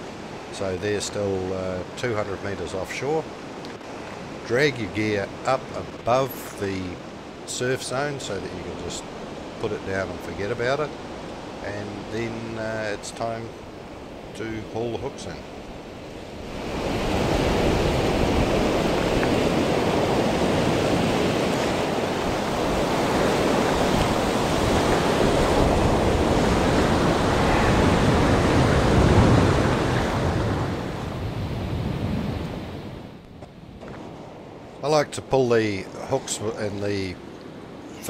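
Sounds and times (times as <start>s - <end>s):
surf washing over sand: 0.0s - 38.0s
wind buffeting microphone: 15.5s - 34.8s.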